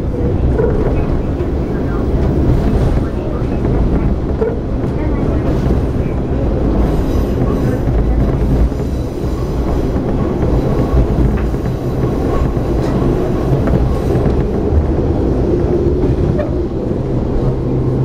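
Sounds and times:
wheels rumbling on track: 0.0s - 18.0s.

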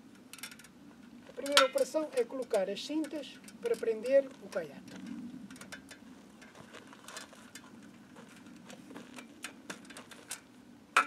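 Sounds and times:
buckles and frame clicking: 0.1s - 11.0s.

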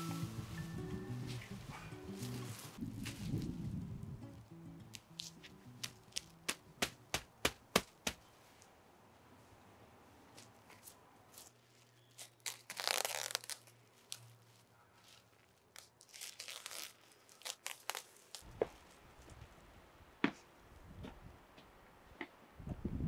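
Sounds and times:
rustling: 0.0s - 3.9s, 10.3s - 19.6s.

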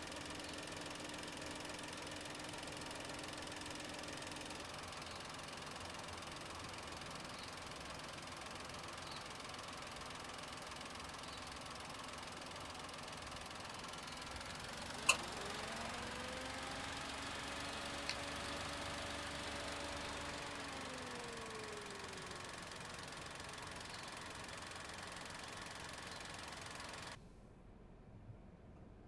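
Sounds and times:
car engine idling: 0.0s - 27.2s
rising whine: 14.2s - 22.2s.

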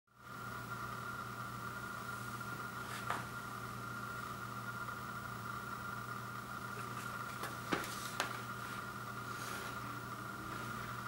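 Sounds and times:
appliance room hum: 0.1s - 11.0s.

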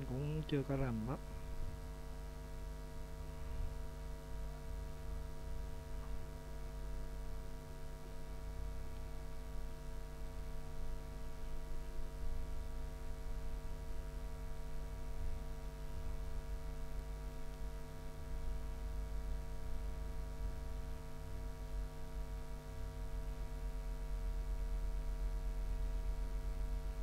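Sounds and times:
electrical hum: 0.0s - 27.0s.

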